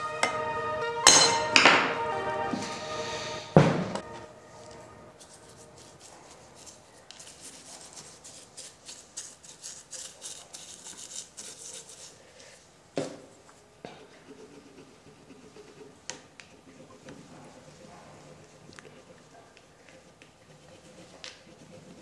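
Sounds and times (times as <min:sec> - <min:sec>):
sharp knock: 0:03.6 - 0:04.1
brush bristles scrubbing metal: 0:05.2 - 0:12.3.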